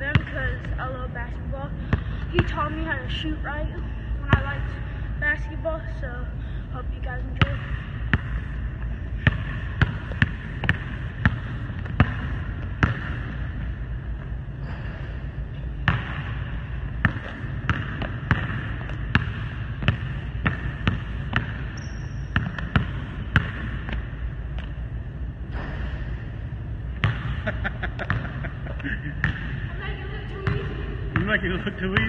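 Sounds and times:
steady low hum: 0:00.0 - 0:32.0
basketball bouncing on wooden floor: 0:09.2 - 0:13.6, 0:15.8 - 0:16.4, 0:17.0 - 0:24.7, 0:27.0 - 0:28.4.

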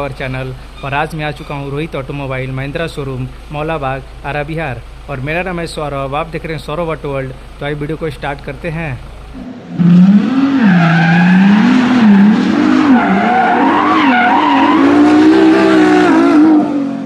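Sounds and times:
tyre squeal: 0:00.6 - 0:01.8, 0:09.8 - 0:16.6
race car engine revving: 0:08.3 - 0:17.0.

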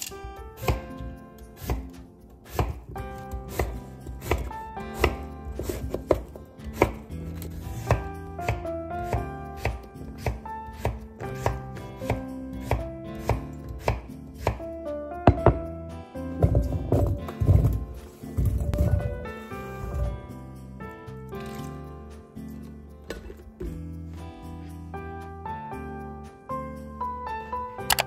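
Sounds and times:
background music: 0:00.0 - 0:28.0
knife chopping on wooden board: 0:00.6 - 0:14.6, 0:15.3 - 0:15.6.

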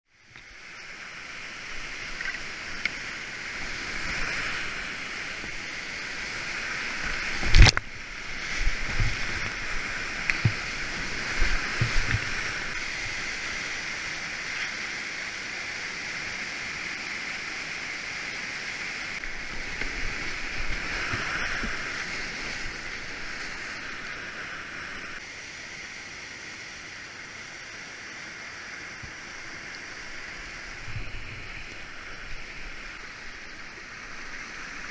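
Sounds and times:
whitewater rapids rushing: 0:00.6 - 0:25.6.

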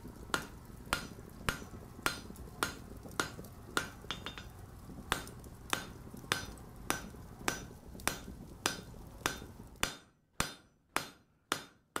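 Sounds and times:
background hiss: 0:00.0 - 0:09.8
hammer striking anvil: 0:03.8 - 0:04.5, 0:05.2 - 0:11.8.

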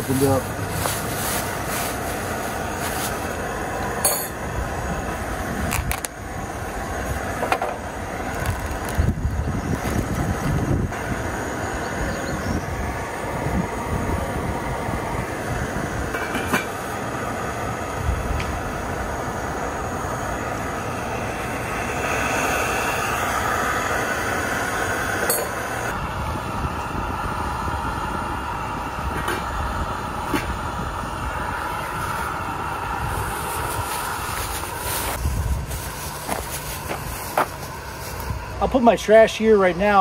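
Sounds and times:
gas camp stove rushing: 0:00.0 - 0:39.0
wind buffeting microphone: 0:08.1 - 0:20.0, 0:25.9 - 0:37.5.

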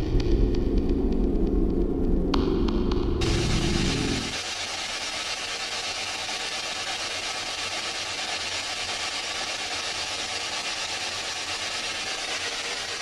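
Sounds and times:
radio static hiss scanning stations: 0:03.2 - 0:04.6.

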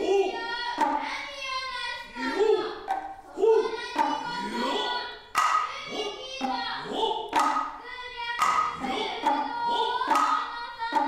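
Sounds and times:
child chanting: 0:00.0 - 0:11.0
hand drum strikes: 0:07.3 - 0:07.8.

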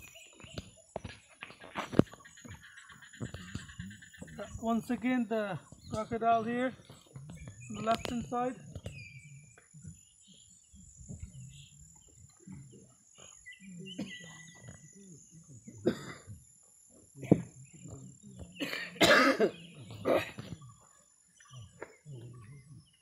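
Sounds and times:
faint murmurs: 0:01.8 - 0:23.0
person coughing: 0:15.8 - 0:16.3, 0:18.6 - 0:20.4.

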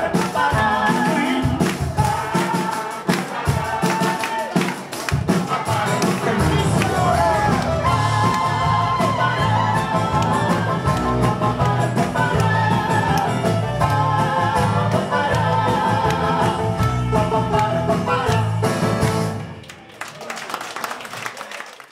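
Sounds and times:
live band playing: 0:00.0 - 0:19.6
woman singing: 0:06.4 - 0:18.5.

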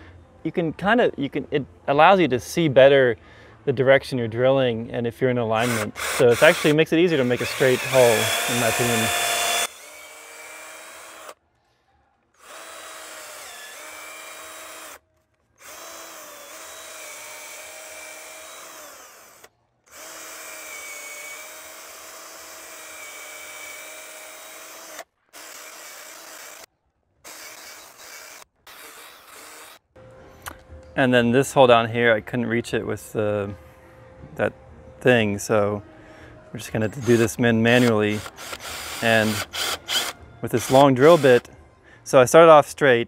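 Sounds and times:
cordless drill motor whine: 0:05.6 - 0:11.4, 0:12.4 - 0:15.0, 0:15.6 - 0:26.7, 0:37.8 - 0:41.5.

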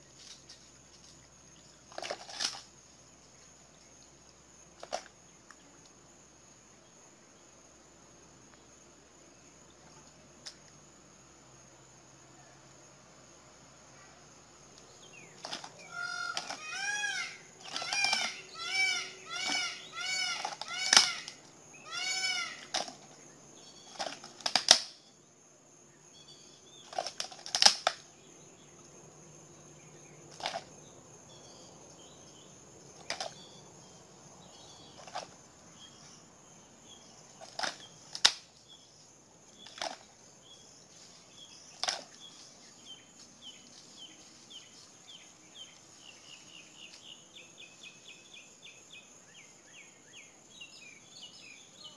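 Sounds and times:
bird calling: 0:15.0 - 0:24.3.

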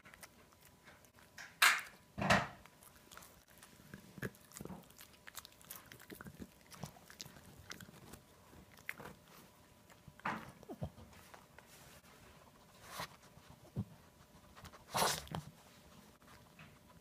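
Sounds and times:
dog gnawing bone: 0:00.0 - 0:11.6.

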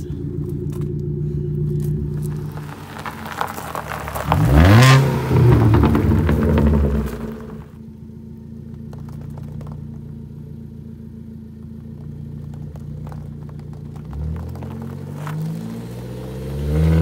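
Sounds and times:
engine idle rumble: 0:00.0 - 0:16.4
loud engine rev: 0:00.7 - 0:07.8, 0:14.0 - 0:17.0.

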